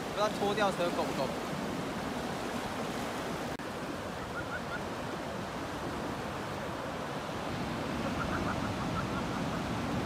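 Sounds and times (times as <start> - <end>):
sea surf rushing: 0.0 - 10.0.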